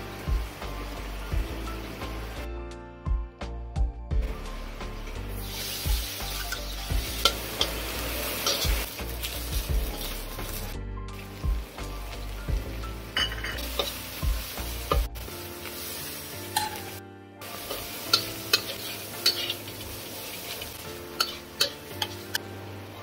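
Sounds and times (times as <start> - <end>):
paste sizzling in hot oil: 5.2 - 22.4
metal spatula scraping wok: 5.4 - 10.7, 13.2 - 22.5.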